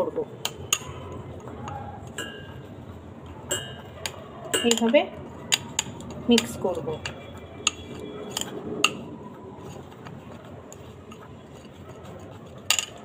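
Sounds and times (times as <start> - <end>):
spoon stirring paste: 0.0 - 13.0
spoon clinking against bowl: 0.4 - 2.7, 3.4 - 9.1.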